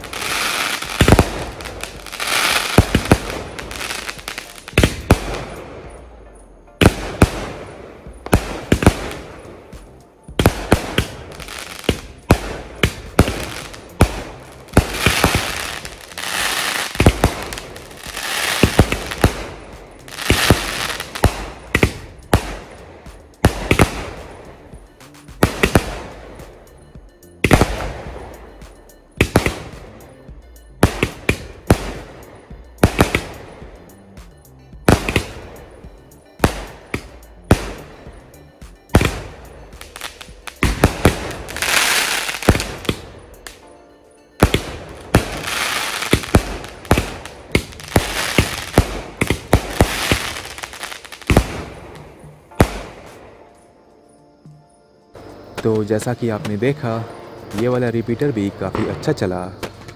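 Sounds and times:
firework crackling: 0.0s - 5.8s, 6.8s - 26.6s, 34.9s - 35.8s, 38.9s - 43.6s, 44.4s - 53.3s
firework shell bursts: 44.4s - 53.2s.

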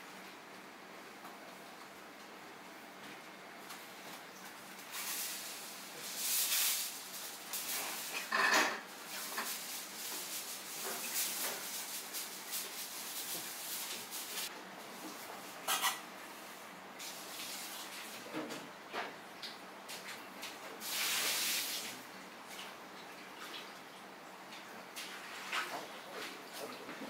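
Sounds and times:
food rustling in ceramic bowl: 4.8s - 16.0s.

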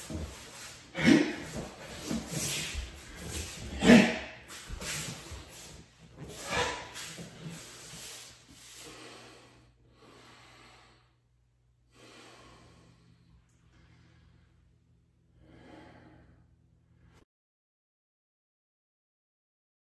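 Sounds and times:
person breathing forcefully: 0.0s - 11.2s, 11.9s - 14.7s, 15.3s - 17.2s.

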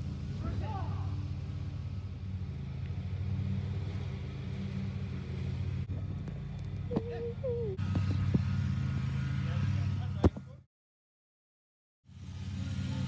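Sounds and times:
motor droning: 1.2s - 10.2s.

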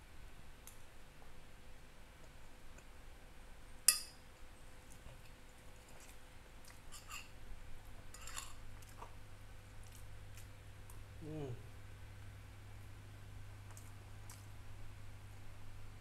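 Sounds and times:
cutlery scraping plate: 6.9s - 7.3s, 8.1s - 8.6s.

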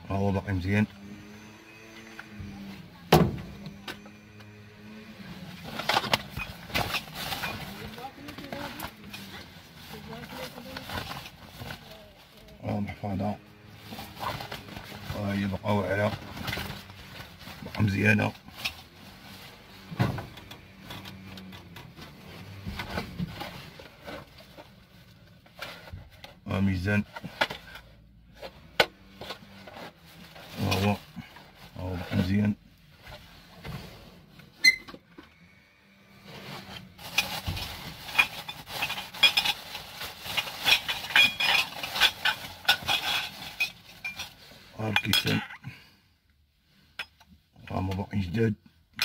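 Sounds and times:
plastic bags rustling: 4.9s - 19.9s, 36.4s - 45.4s
items clicking and clinking: 5.5s - 12.6s, 36.9s - 45.7s.

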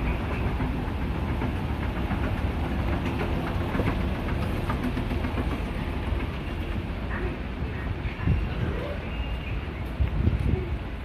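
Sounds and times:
escalator rumbling: 0.0s - 11.0s.

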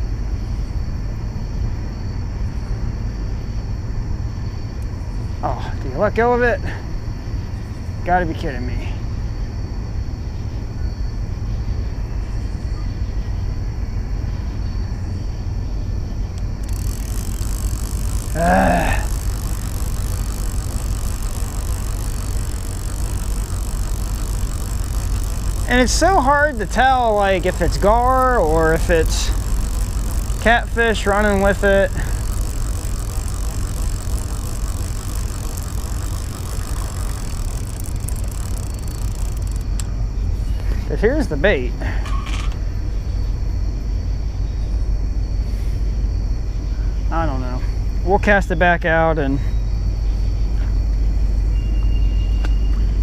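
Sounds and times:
steady low rumble: 16.0s - 41.0s
fishing reel whir: 16.1s - 42.5s.

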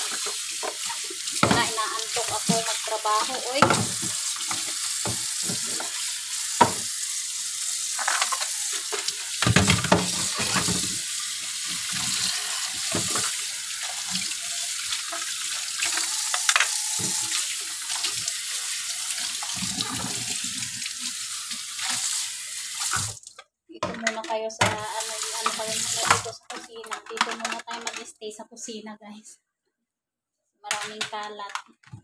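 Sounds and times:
kitchenware clinking and knocking: 0.1s - 6.0s, 9.4s - 10.9s.

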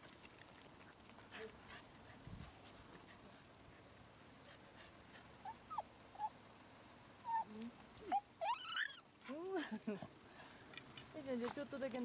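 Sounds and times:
dog whining: 5.4s - 6.3s, 7.2s - 9.1s.

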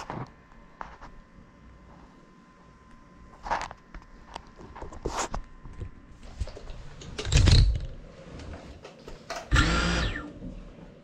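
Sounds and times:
drone motors whining: 9.5s - 10.6s.

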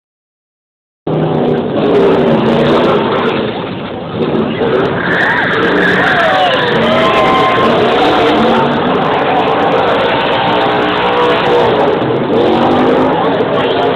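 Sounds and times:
race car engine revving hard: 1.1s - 13.9s
tyres squealing: 4.8s - 11.3s.

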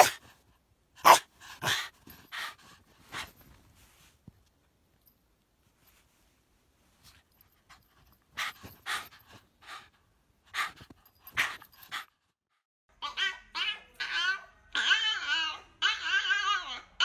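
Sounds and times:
dog panting hard: 1.4s - 3.4s, 7.7s - 12.2s.

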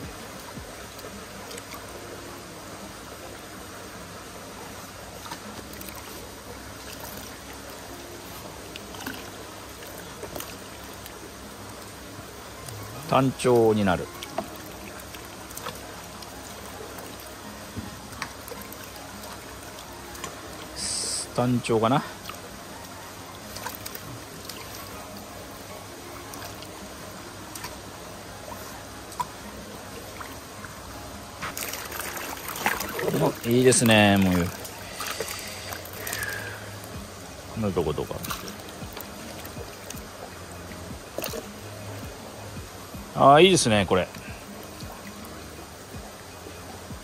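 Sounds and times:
running water: 0.0s - 47.0s
small splashes or drips: 5.1s - 12.0s, 12.6s - 22.6s, 23.4s - 27.9s, 28.5s - 43.2s
faint small splashes: 31.4s - 37.0s, 37.7s - 42.2s.

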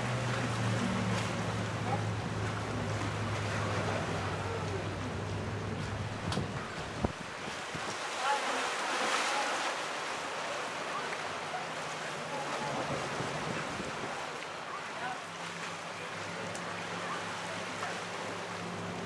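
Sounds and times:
open water wash: 0.0s - 19.0s
wind buffeting microphone: 5.7s - 8.0s.

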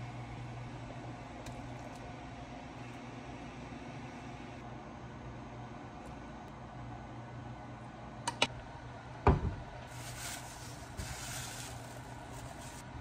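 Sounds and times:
low steady hum: 0.0s - 13.0s
plastic bags crinkling: 9.9s - 12.9s.

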